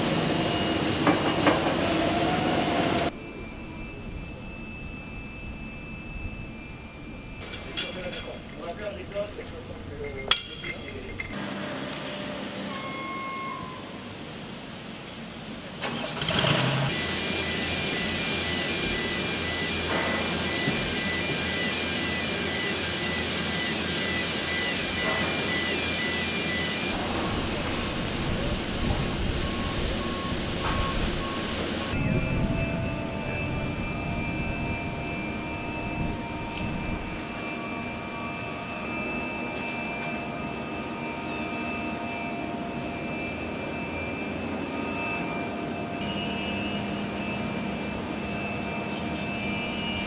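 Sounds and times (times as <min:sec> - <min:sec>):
high whining tones: 0:00.0 - 0:15.4, 0:16.9 - 0:50.0
mechanical drone: 0:00.0 - 0:50.0
metal clank with ring: 0:07.3 - 0:09.4, 0:10.0 - 0:11.4, 0:39.5 - 0:40.3.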